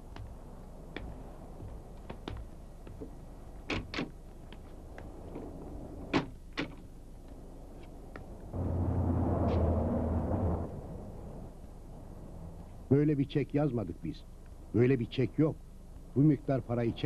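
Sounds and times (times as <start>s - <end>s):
footsteps across a room: 0.0s - 3.2s
faint steady hiss: 0.0s - 17.0s.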